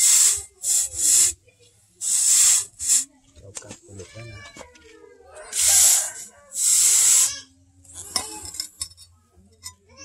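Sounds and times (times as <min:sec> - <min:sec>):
hot steel hissing in water: 0:00.0 - 0:01.4, 0:02.0 - 0:03.1, 0:05.4 - 0:07.5.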